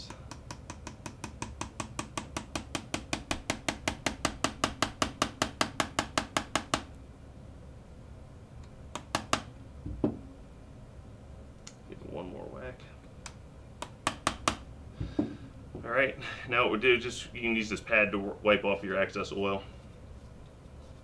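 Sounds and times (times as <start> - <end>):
hammer tapping metal punch: 0.0 - 6.9, 13.8 - 14.7
dull knock: 9.2 - 10.2.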